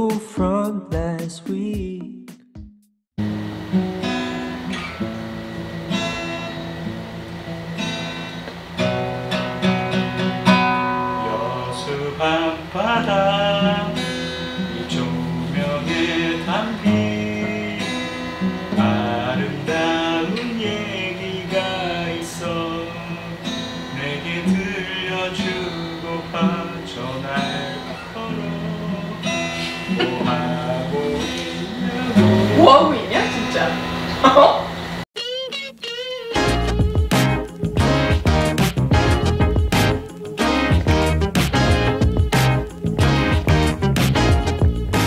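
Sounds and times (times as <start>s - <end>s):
man singing: 0.0s - 2.4s, 11.1s - 32.8s
acoustic guitar strumming: 3.2s - 45.0s.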